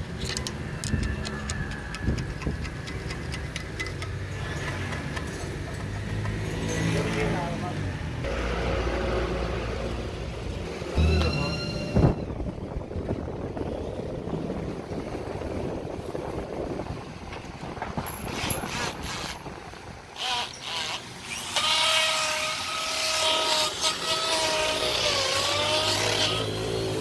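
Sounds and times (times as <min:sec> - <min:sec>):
motor whining and hissing: 0:20.2 - 0:27.0.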